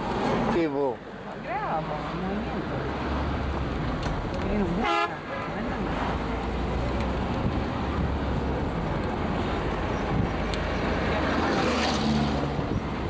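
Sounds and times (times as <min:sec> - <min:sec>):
road noise: 0:00.0 - 0:13.0
vehicle engine rumble: 0:00.0 - 0:13.0.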